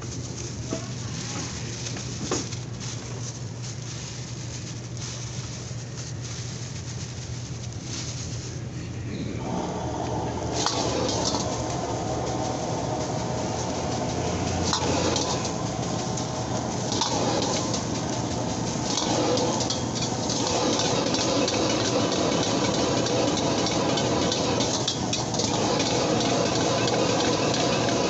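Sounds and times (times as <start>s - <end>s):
ladle scraping a wok: 10.2s - 28.0s
rice sizzling in a wok: 10.4s - 28.0s.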